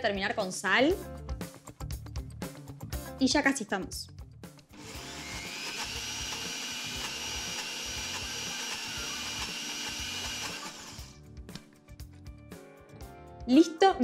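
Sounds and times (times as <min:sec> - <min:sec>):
blender motor whine: 0:04.8 - 0:11.2.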